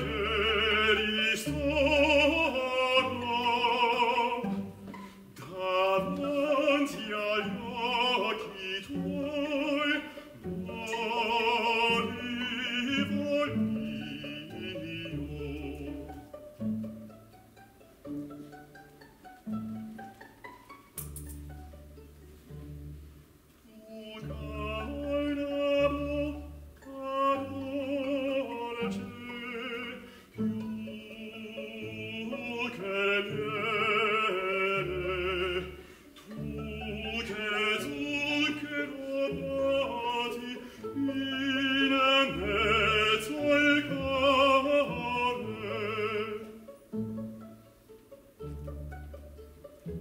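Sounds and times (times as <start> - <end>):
man singing opera with vibrato: 0.0 - 16.4, 23.6 - 46.8
plucked strings: 0.0 - 23.5, 24.2 - 50.0
small orchestra: 0.0 - 50.0.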